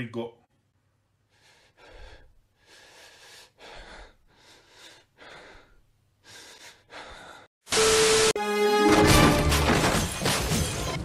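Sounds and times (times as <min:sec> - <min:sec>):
person breathing heavily: 0:01.3 - 0:07.6.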